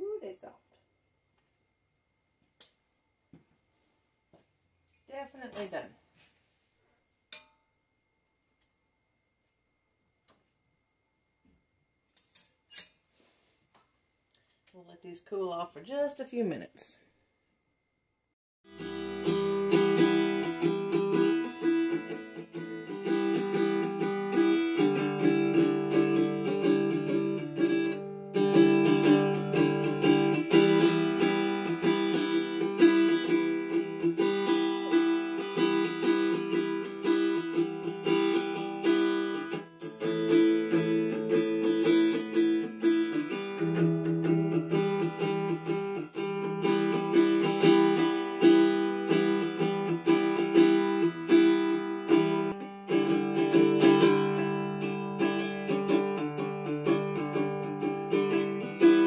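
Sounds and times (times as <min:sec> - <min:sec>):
acoustic guitar strummed: 0:18.7 - 0:59.0.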